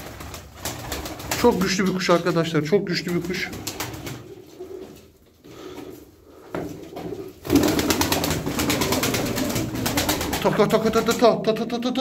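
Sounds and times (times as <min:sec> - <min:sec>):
pigeon wings clapping and flapping: 0:00.0 - 0:02.3, 0:03.0 - 0:04.4, 0:07.4 - 0:11.3
pigeons cooing softly: 0:03.0 - 0:10.4.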